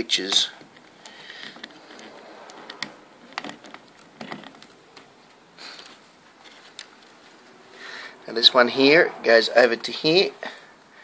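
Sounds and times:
soft rustle: 0.3 - 8.2.

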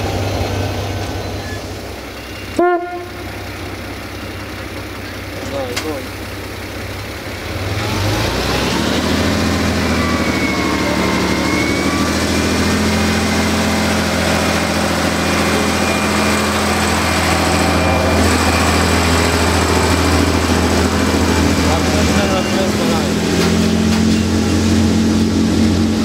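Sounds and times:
diesel train engine running: 0.0 - 26.0
thin high squeal: 9.8 - 13.1.

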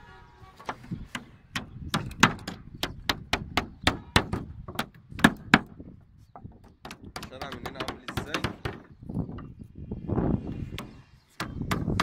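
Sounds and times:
hammer nailing into wood: 1.1 - 5.8, 6.8 - 8.9, 10.7 - 12.0.

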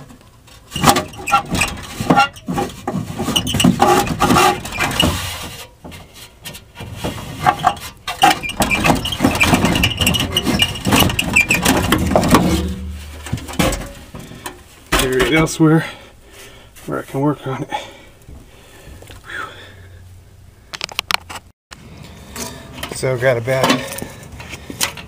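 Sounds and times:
metal scraping and clanking: 0.0 - 15.6, 22.2 - 25.0
high scraping squeal: 8.2 - 13.2.

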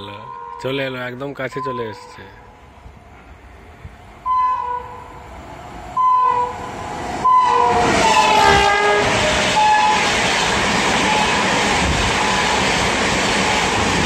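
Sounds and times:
locomotive horn blasts: 4.2 - 5.1, 6.0 - 6.6, 7.2 - 10.0
train coaches rushing and clattering: 5.9 - 14.0.

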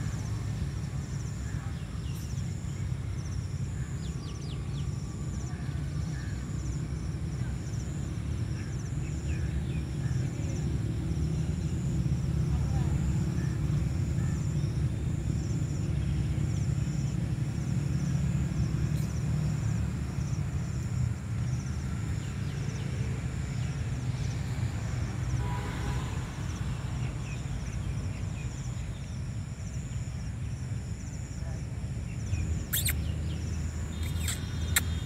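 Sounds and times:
insects chirping in pulses: 0.0 - 35.0
faint bird chirps: 32.1 - 35.0.

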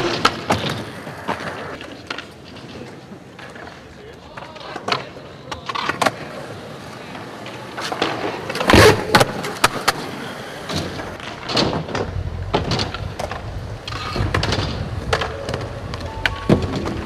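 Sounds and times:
skateboard wheels rolling on concrete: 0.0 - 17.0
skateboards clacking on ground: 0.0 - 17.0.

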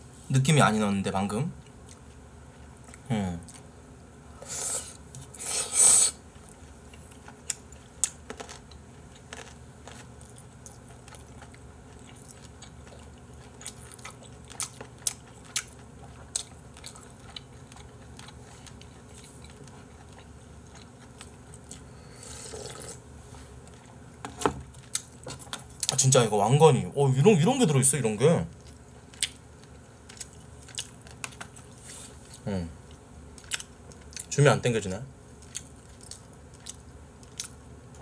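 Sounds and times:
chewing with small clicks: 1.6 - 3.7, 6.3 - 21.8, 24.7 - 26.0, 28.5 - 34.4, 35.4 - 38.0
person slurping noodles: 22.1 - 23.0.

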